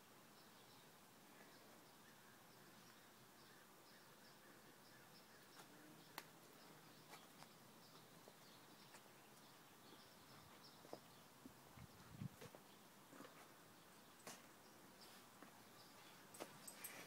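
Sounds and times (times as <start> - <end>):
soft high chirps: 15.8 - 17.0.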